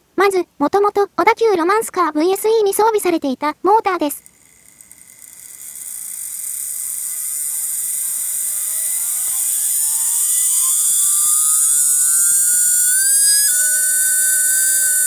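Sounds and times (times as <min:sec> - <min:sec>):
high hiss: 0:04.2 - 0:15.0
small motor whine rising: 0:04.2 - 0:15.0.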